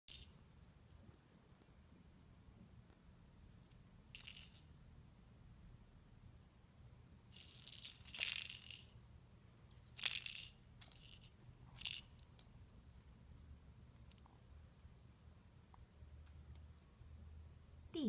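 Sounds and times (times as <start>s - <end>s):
cat batting toys on hard floor: 7.4s - 8.9s, 9.8s - 12.4s.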